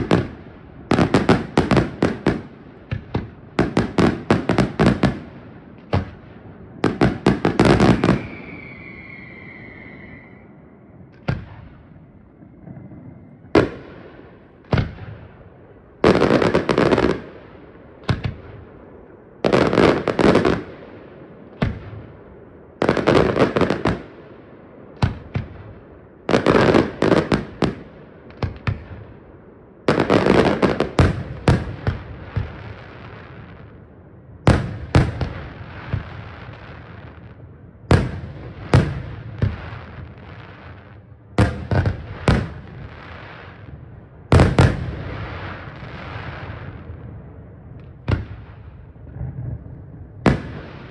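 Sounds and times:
fireworks bursting with bangs: 0:00.0 - 0:50.9
firework whistle: 0:07.5 - 0:11.6.

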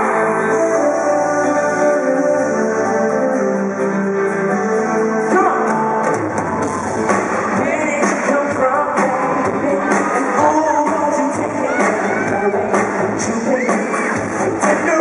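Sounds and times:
person singing: 0:00.0 - 0:06.1, 0:07.5 - 0:15.0
keyboard chords: 0:00.0 - 0:11.7
live pop band playing: 0:00.0 - 0:15.0.

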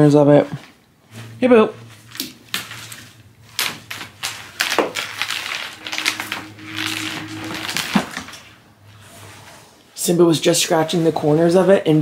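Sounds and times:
steady low hum: 0:01.0 - 0:09.5.

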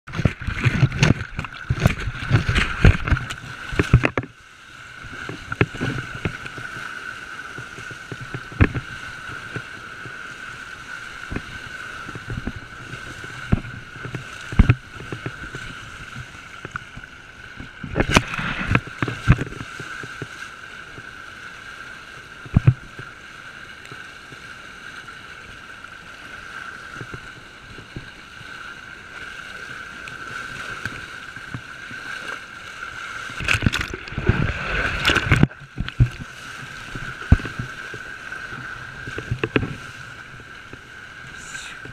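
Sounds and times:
seawater splashing: 0:00.1 - 0:21.2, 0:21.8 - 0:41.9
water slaps: 0:33.3 - 0:36.3
hiss of moving water: 0:37.9 - 0:41.9.

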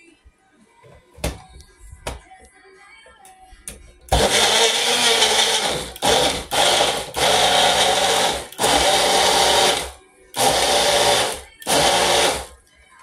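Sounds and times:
blender motor pulsing: 0:04.1 - 0:12.5.

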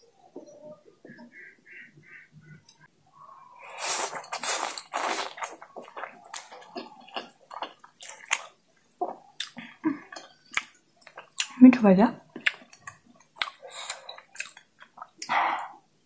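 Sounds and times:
wet slurp of noodles: 0:03.6 - 0:05.7
wet chewing: 0:03.8 - 0:11.6, 0:12.3 - 0:15.3.

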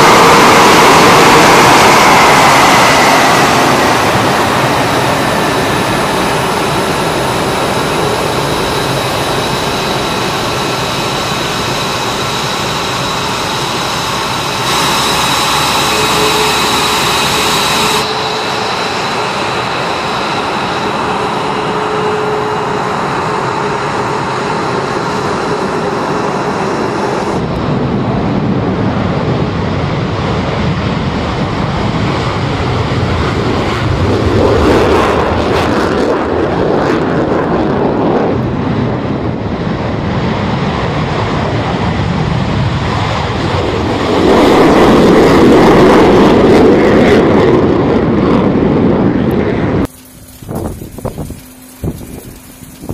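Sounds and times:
jet engines whining: 0:00.0 - 0:52.9
jet taking off roaring: 0:00.0 - 0:52.9.

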